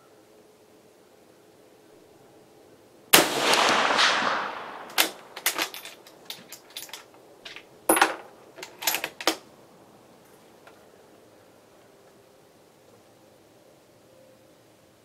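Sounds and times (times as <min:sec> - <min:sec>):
rifle shot with echo: 0:03.2 - 0:05.8
rifle bolt metallic clicks: 0:03.4 - 0:09.4.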